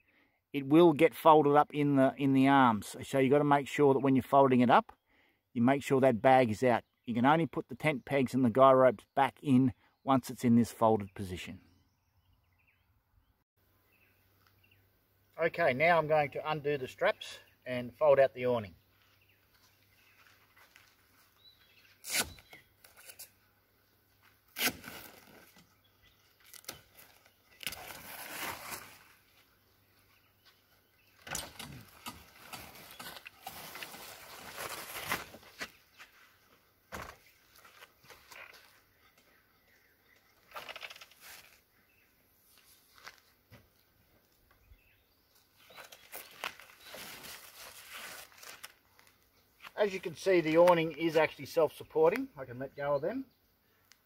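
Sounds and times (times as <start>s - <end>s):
fabric rasping open: 22.0s - 23.3s, 24.6s - 25.4s.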